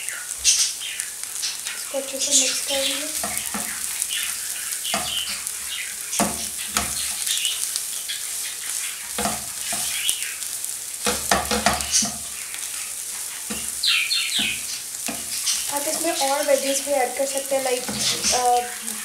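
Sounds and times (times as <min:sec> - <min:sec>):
food sizzling in oil: 0:00.0 - 0:19.0
wooden spatula scraping pan: 0:09.1 - 0:10.0, 0:11.0 - 0:13.8, 0:14.4 - 0:19.0.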